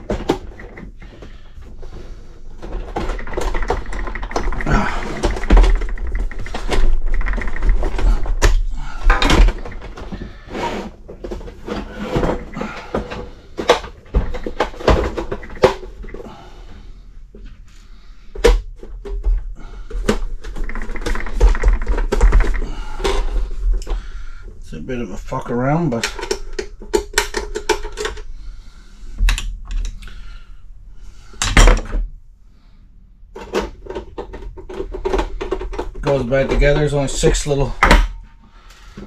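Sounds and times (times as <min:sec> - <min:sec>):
plastic scraping: 0:02.0 - 0:16.3, 0:19.8 - 0:24.3
plastic parts clicking and rattling: 0:02.5 - 0:10.4, 0:11.2 - 0:16.3, 0:18.4 - 0:24.1, 0:25.9 - 0:28.3, 0:33.4 - 0:38.2.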